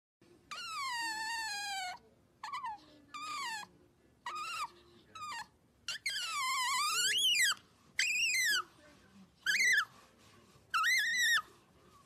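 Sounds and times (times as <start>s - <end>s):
otter squeaking: 4.3s - 8.7s, 9.4s - 10.0s, 10.7s - 11.5s.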